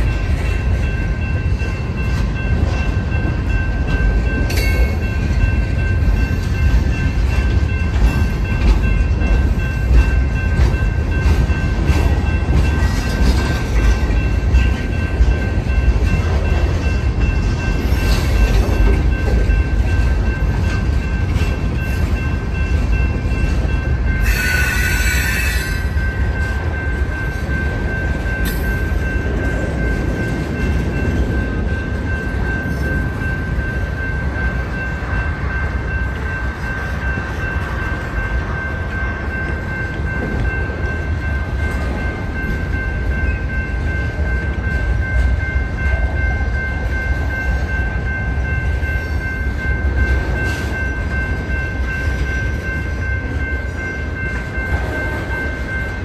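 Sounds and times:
freight car wheels rumbling on rails: 0.0 - 24.3.

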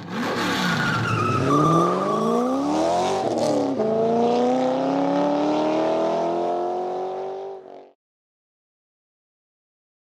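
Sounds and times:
car engine accelerating: 0.0 - 8.0.

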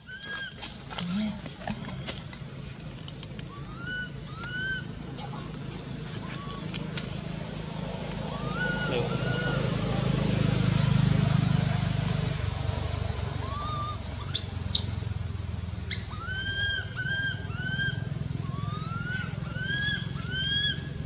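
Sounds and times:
baby monkey crying: 0.0 - 0.6, 3.5 - 4.9, 8.3 - 9.9, 13.4 - 14.9, 15.9 - 20.9
low steady hum: 0.0 - 21.0.

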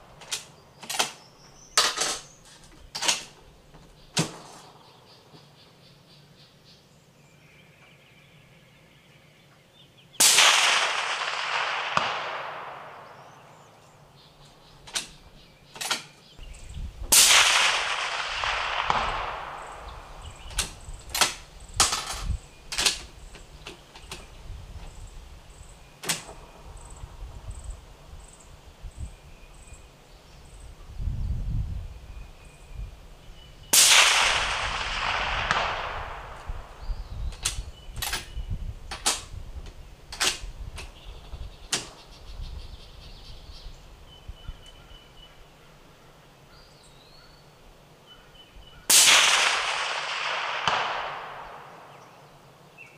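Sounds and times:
sharp clicks and knocks: 0.2 - 1.2, 1.8 - 4.6, 14.8 - 16.2, 20.4 - 25.0, 26.0 - 26.5, 37.3 - 40.9
suppressed rifle shots with echo: 10.2 - 13.8, 17.1 - 22.2, 33.7 - 37.1, 48.9 - 52.3.

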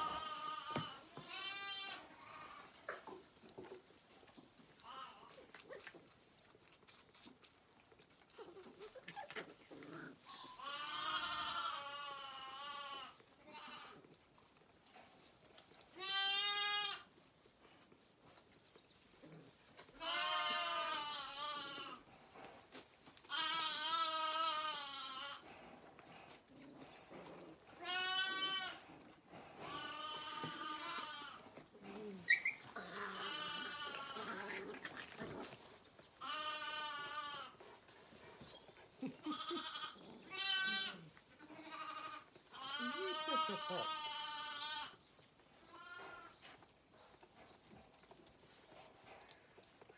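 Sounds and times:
lambs bleating: 0.0 - 2.8, 9.8 - 14.0, 16.0 - 17.1, 20.0 - 22.1, 23.2 - 25.4, 27.8 - 28.9, 29.6 - 31.5, 32.3 - 35.4, 36.2 - 37.7, 39.1 - 45.0, 45.6 - 46.4.

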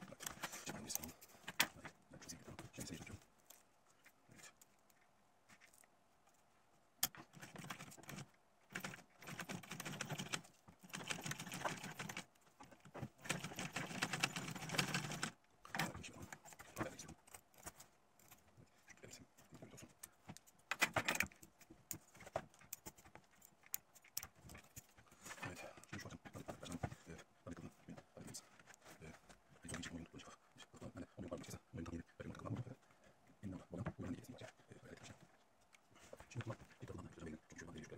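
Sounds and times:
sewing machine stitching leather: 7.0 - 12.3, 12.9 - 15.4.

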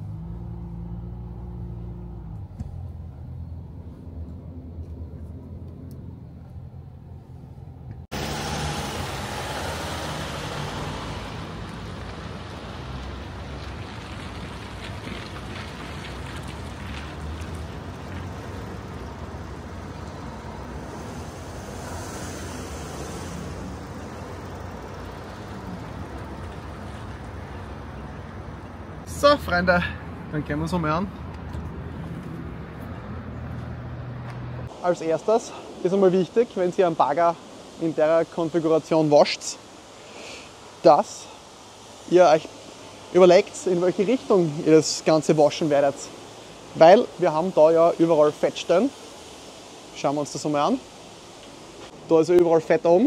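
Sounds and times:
tyres on asphalt: 0.0 - 53.0.

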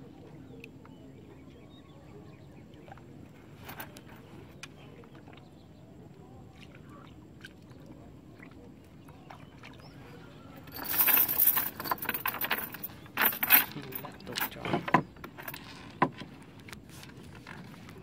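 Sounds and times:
metal chain weights rattling: 10.6 - 15.9.

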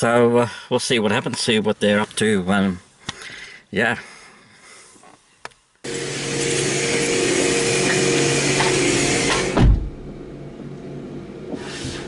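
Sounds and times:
car wash spray hissing: 5.9 - 9.6
motor hum: 5.9 - 12.0
low thump: 9.4 - 10.2.

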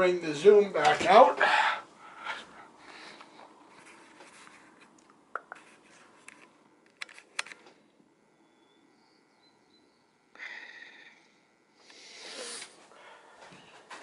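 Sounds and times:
soft rustling: 2.3 - 6.5.

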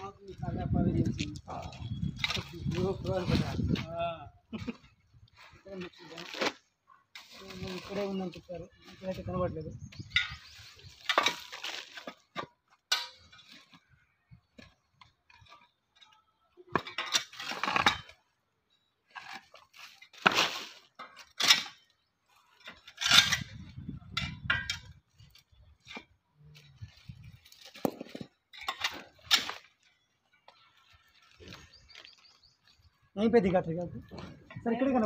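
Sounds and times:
metal hook scraping through rubble: 16.8 - 18.2, 20.2 - 25.1, 27.5 - 29.7.

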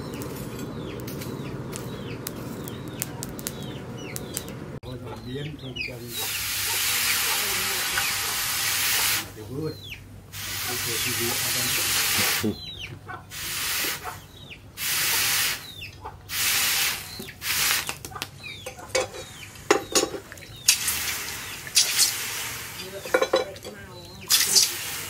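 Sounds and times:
hot blade hissing in water: 6.1 - 9.3, 20.7 - 23.2, 24.3 - 25.0.

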